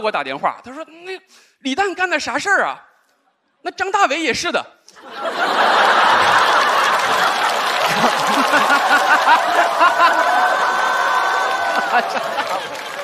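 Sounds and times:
audience laughing: 5.0 - 13.0.

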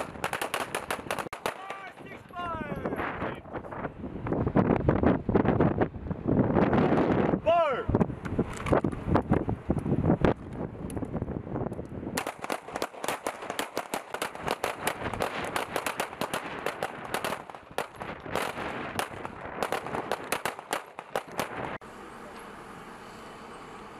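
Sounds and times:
pistols firing: 0.0 - 2.2, 12.2 - 21.6.

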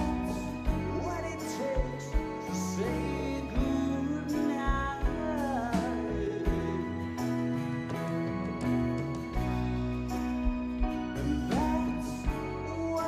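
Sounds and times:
man singing: 0.0 - 7.4, 11.2 - 13.0
acoustic guitar: 0.0 - 13.0
live rock band playing: 0.0 - 13.0.

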